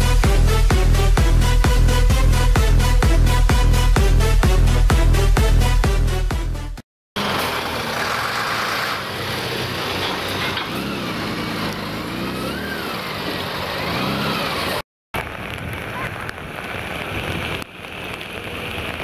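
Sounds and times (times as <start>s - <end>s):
wet city street noise: 7.2s - 19.0s
emergency siren wailing: 12.3s - 13.2s.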